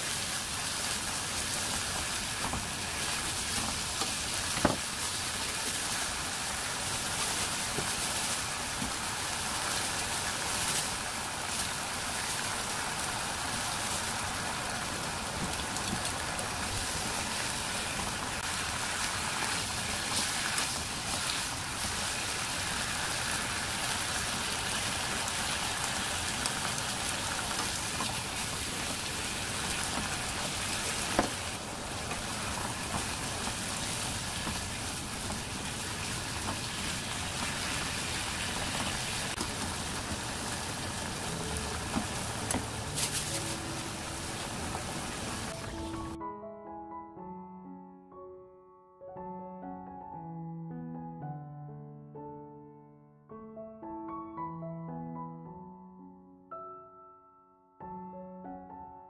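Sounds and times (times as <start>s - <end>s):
food sizzling in a frying pan: 0.0s - 45.6s.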